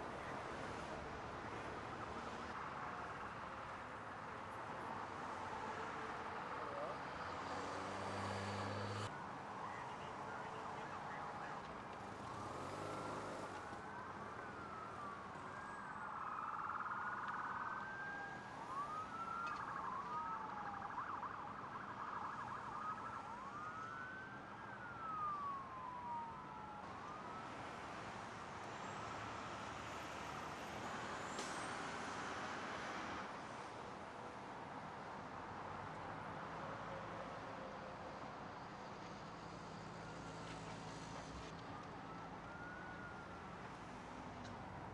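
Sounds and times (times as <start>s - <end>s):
emergency vehicle sirens wailing: 0.0s - 44.9s.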